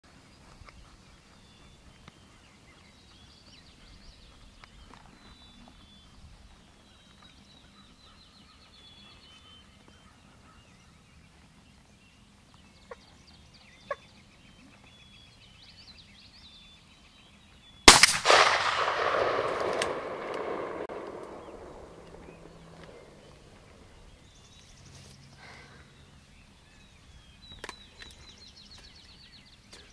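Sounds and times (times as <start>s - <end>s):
songbirds chirping: 0.1s - 29.9s
shotgun blast echoing: 17.9s - 23.8s.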